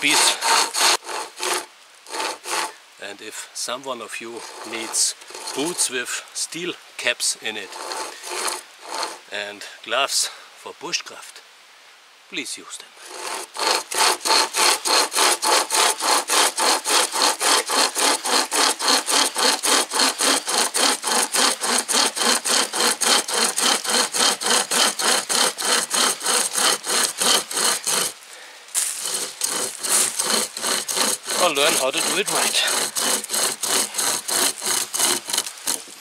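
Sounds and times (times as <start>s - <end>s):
hand saw cutting log: 0.0s - 3.2s, 4.0s - 9.5s, 13.0s - 36.0s.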